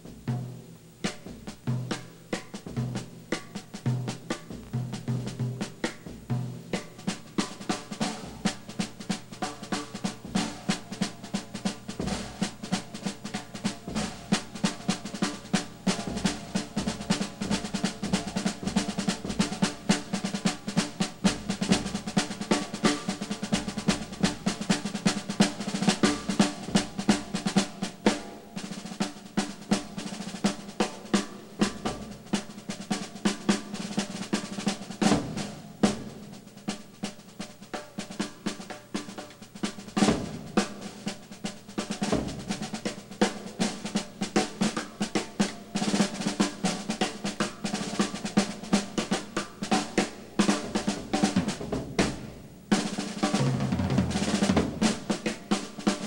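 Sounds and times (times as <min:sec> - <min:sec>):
bass drum accents: 0:00.0 - 0:27.4, 0:50.3 - 0:55.8
snare drum rolls: 0:00.0 - 0:56.0.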